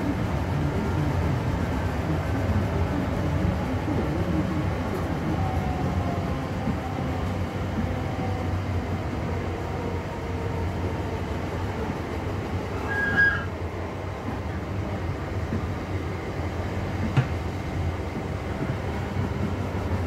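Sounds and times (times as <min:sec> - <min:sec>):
train wheels rumbling on track: 0:00.0 - 0:20.0
high squeal: 0:12.8 - 0:13.5.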